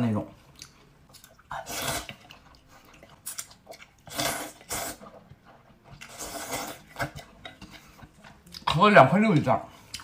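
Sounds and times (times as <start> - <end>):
chewing: 0.5 - 8.7
person slurping noodles: 1.4 - 2.4, 4.0 - 5.2, 6.0 - 7.8.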